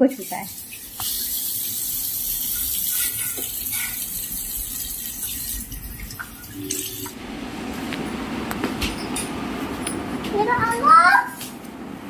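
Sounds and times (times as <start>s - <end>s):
child washing hands: 0.0s - 7.2s
tap water running into basin: 0.0s - 7.2s.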